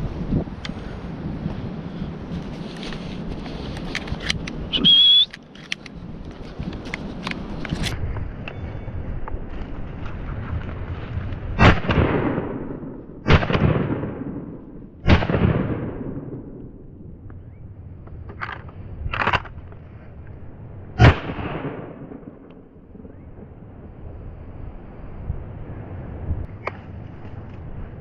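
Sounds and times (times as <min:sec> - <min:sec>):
loud shotgun shots with echo: 0:11.6 - 0:16.5.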